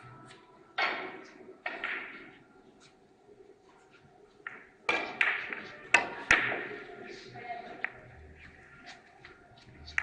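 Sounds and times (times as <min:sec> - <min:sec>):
billiard balls clacking: 0:04.4 - 0:06.8.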